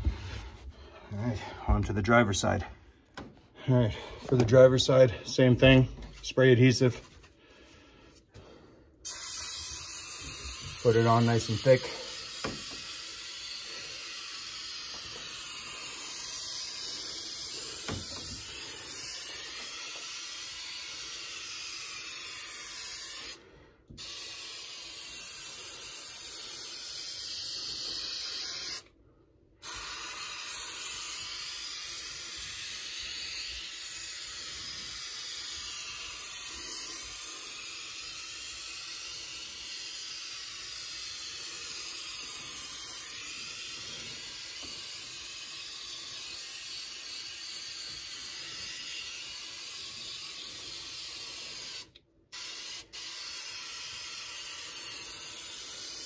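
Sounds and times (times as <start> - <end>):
spray adhesive hissing: 9.0 - 28.9, 29.6 - 56.0.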